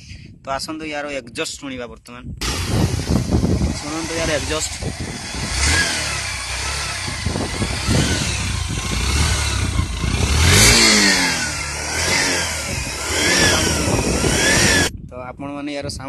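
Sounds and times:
motorcycle engine revving: 0:02.4 - 0:14.9.

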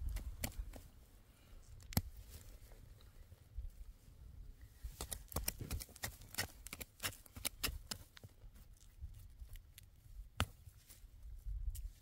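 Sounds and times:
plants snapping and rustling: 0:00.0 - 0:00.9, 0:01.8 - 0:02.7, 0:04.9 - 0:10.9.

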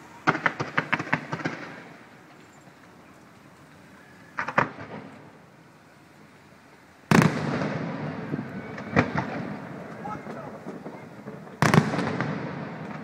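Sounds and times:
firework shells bursting: 0:00.2 - 0:02.1, 0:04.3 - 0:05.4, 0:07.1 - 0:13.0.

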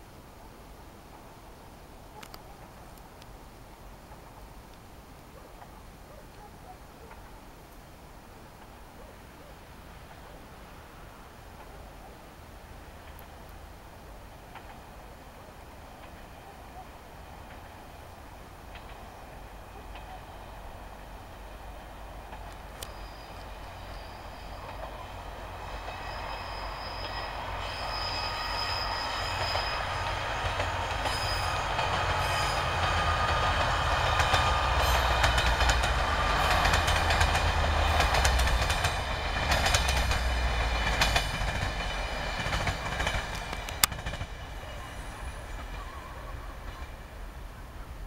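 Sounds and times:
diesel train engine rumble and whine: 0:08.4 - 0:48.0
train wheels clicking over rail joints: 0:14.4 - 0:15.0, 0:15.7 - 0:16.4, 0:17.1 - 0:17.9, 0:18.6 - 0:45.8.

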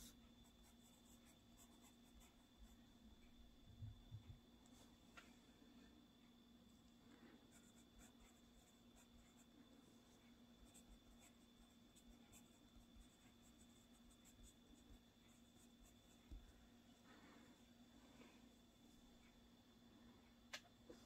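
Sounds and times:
pencil scratching on paper: 0:00.0 - 0:02.8, 0:07.5 - 0:09.5, 0:10.6 - 0:16.4
faint electrical hum: 0:00.0 - 0:21.0.

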